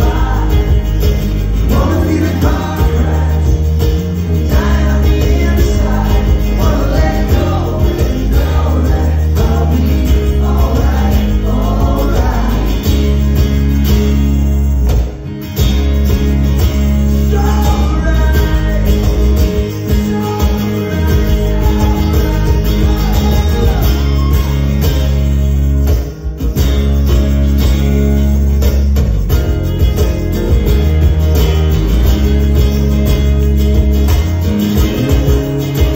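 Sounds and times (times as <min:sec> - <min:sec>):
man singing into microphone: 0:00.0 - 0:13.1, 0:17.2 - 0:24.5
acoustic guitar strumming: 0:00.0 - 0:35.9.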